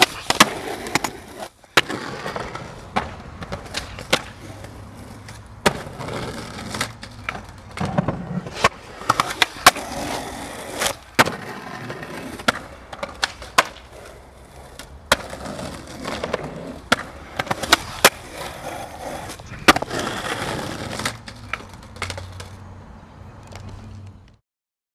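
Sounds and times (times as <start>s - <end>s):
skateboard clacks: 0.0s - 22.6s
skateboard rolling on concrete: 0.0s - 24.4s.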